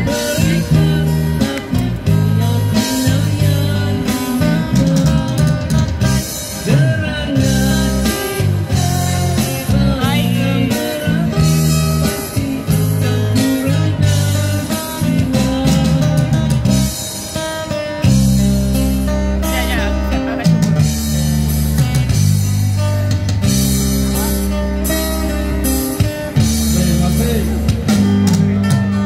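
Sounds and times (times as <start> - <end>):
man singing into a microphone: 0.0 - 16.6, 26.3 - 29.0
acoustic guitar: 0.0 - 29.0
electric guitar: 0.0 - 29.0
keyboard: 0.0 - 29.0.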